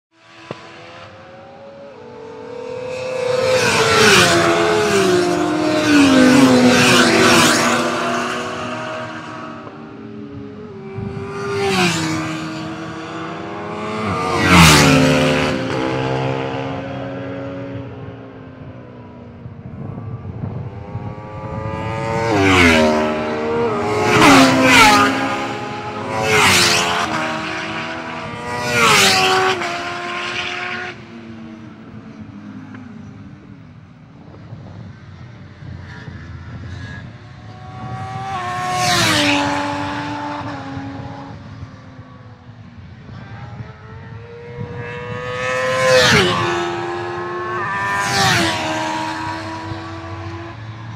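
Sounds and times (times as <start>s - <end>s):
motorcycles passing at speed: 0.2s - 50.9s.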